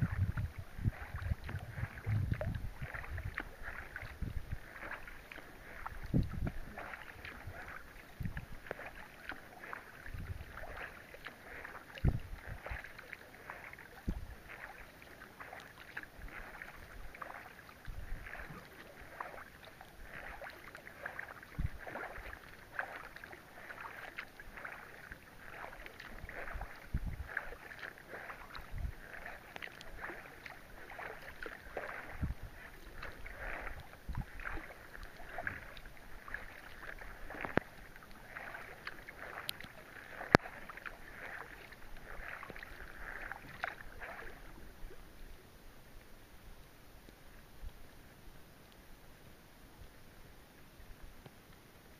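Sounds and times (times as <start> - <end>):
water dripping: 0.0 - 44.4
rain pattering on water: 0.0 - 45.3
paddle splashes: 0.0 - 48.8.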